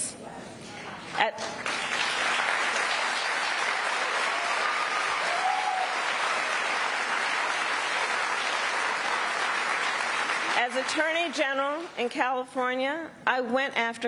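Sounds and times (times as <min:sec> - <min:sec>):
crowd applauding: 0:01.6 - 0:12.0
audience calls: 0:02.2 - 0:10.6.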